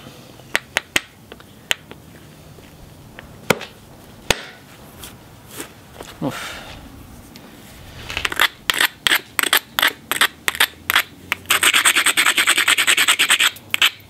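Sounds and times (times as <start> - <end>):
stone scraping on stone: 7.9 - 14.0.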